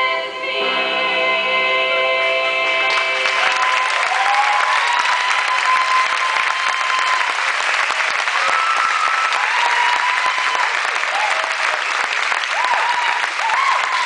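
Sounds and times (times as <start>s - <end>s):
audience applauding: 2.9s - 14.0s
high-pitched calls from crowd: 3.4s - 7.4s.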